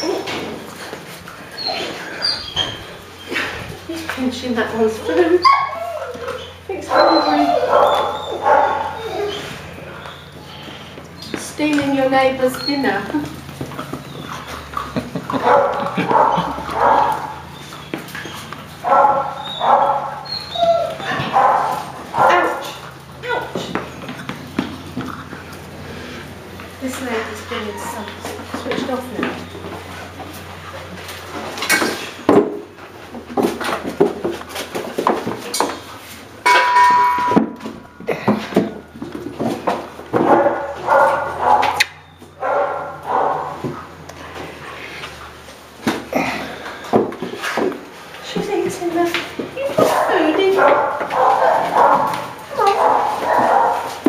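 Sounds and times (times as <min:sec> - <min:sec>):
puppy whining: 0:00.0 - 0:11.4, 0:12.3 - 0:32.2, 0:40.3 - 0:45.4, 0:49.5 - 0:54.0
dogs barking: 0:04.9 - 0:11.2, 0:12.4 - 0:32.3, 0:39.7 - 0:44.6, 0:49.5 - 0:54.0
puppies knocking in plastic tub: 0:31.4 - 0:41.8.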